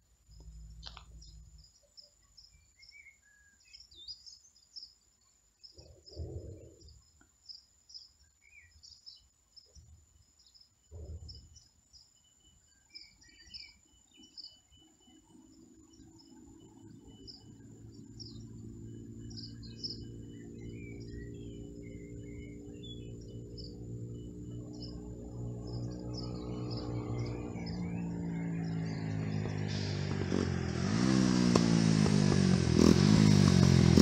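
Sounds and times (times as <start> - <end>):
small birds chirping: 0.2 - 34.0.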